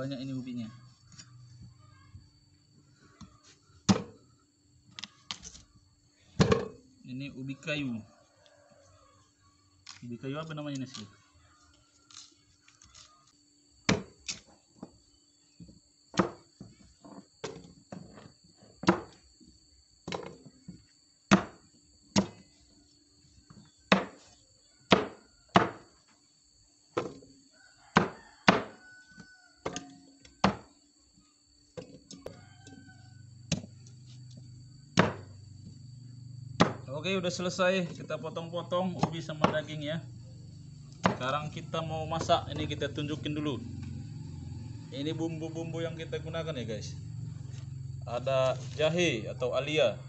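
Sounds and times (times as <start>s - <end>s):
knife chopping on wooden block: 23.9s - 24.2s, 24.9s - 25.9s, 27.9s - 28.8s, 36.6s - 36.8s, 41.0s - 41.2s.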